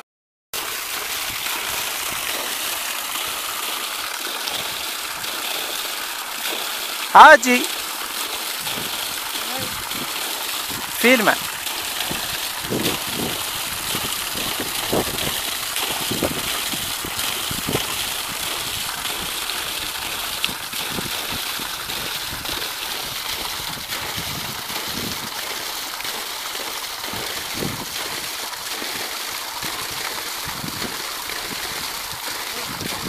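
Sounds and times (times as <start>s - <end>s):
water gushing onto rocks: 0.6s - 33.0s.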